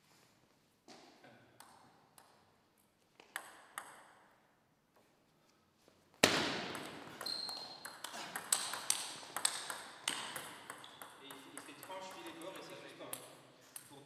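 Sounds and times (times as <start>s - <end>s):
ball clicking on bat and table: 1.6s - 2.4s, 3.2s - 4.1s, 6.7s - 12.2s
table tennis ball ticking: 6.8s - 12.6s.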